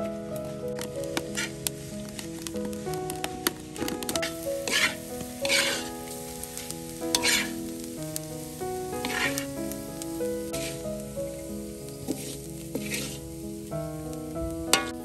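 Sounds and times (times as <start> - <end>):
ginger sizzling in a wok: 0.7 - 15.0
metal spatula scraping a wok: 4.2 - 5.9, 7.1 - 7.5, 9.0 - 9.4, 10.6 - 10.8, 12.1 - 13.3, 14.7 - 15.0.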